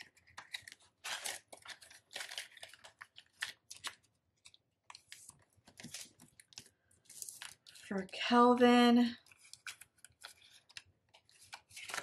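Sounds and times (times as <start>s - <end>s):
banknotes rustling: 0.0s - 8.1s, 9.0s - 12.0s.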